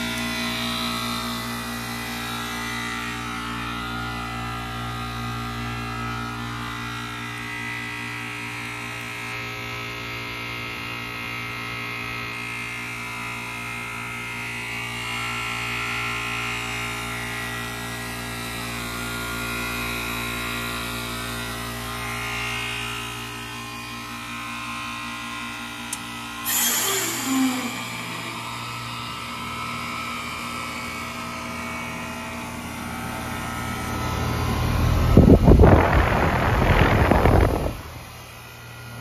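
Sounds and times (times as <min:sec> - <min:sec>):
compressor humming: 0:25.9 - 0:31.1, 0:32.4 - 0:39.0.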